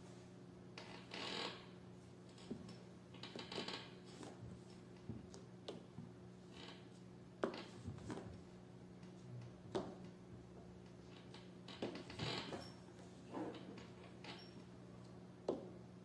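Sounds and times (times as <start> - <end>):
low steady hum: 0.0 - 16.0
soft rustles: 6.7 - 10.0.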